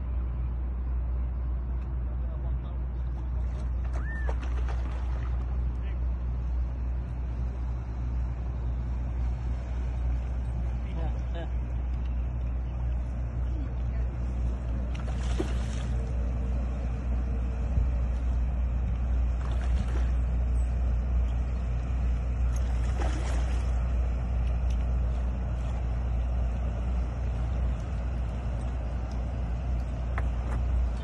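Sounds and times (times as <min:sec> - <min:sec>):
boat engine drone: 0:00.0 - 0:31.0
fish splashing: 0:03.9 - 0:05.4, 0:14.8 - 0:16.1, 0:19.3 - 0:20.4, 0:22.5 - 0:23.9.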